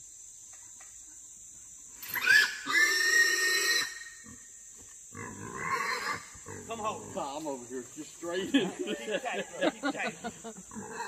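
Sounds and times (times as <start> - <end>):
hog squealing: 5.5 - 6.2.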